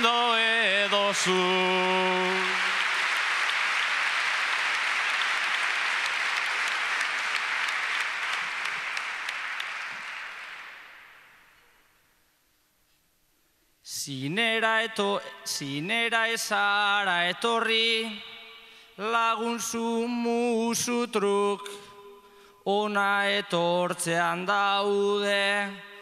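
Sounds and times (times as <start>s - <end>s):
audience applause: 0.0s - 11.4s.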